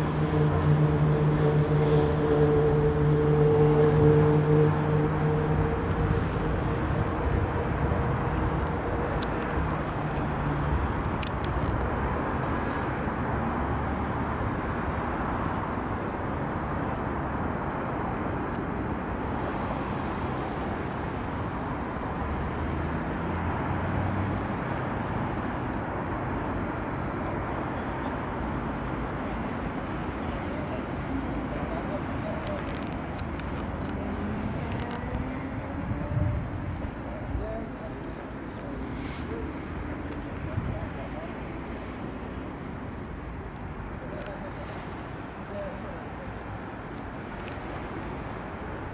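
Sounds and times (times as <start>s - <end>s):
boat engine humming: 0.0s - 10.8s
steady rushing noise: 0.0s - 48.9s.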